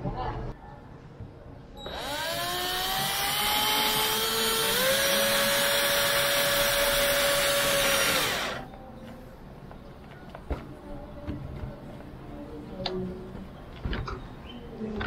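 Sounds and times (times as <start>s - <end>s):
electric drill whining: 1.8s - 8.7s.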